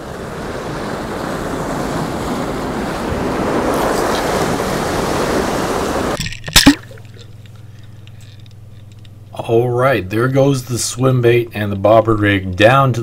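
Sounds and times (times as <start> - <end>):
ocean surf washing on rocks: 0.0 - 6.2
wind: 0.0 - 13.0
low hum: 6.1 - 13.0.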